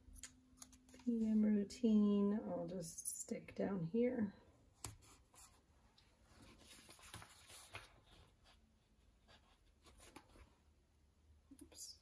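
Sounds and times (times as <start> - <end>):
paper rustling: 6.3 - 8.6, 9.2 - 10.6.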